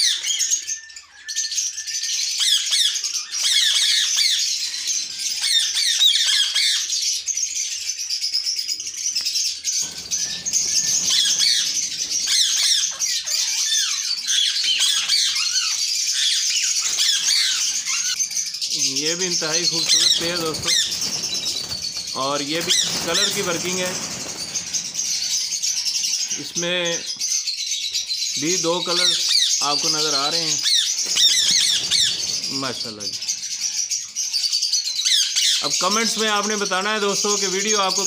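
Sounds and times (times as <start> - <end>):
parakeets screeching and chirping: 0.0 - 38.0
wing flapping: 9.8 - 12.9, 18.8 - 26.4, 30.8 - 32.7
person speaking voiceover: 18.8 - 21.0, 22.1 - 24.2.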